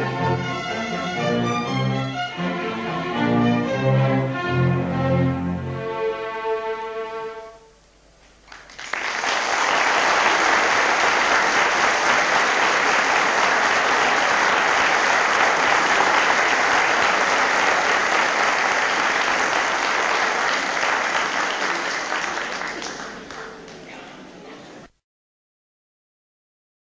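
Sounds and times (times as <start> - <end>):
audience applauding: 8.4 - 24.2.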